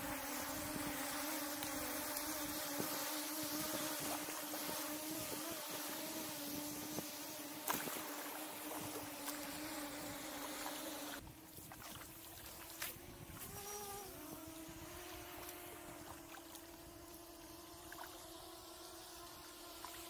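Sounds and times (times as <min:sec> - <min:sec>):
wind: 0:00.0 - 0:20.0
kayak paddle splashing: 0:07.6 - 0:09.6, 0:11.5 - 0:13.4.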